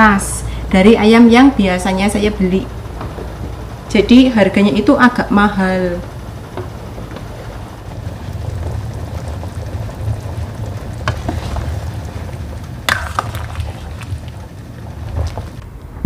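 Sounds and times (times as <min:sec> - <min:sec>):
soup boiling in a pot: 0:06.1 - 0:15.6.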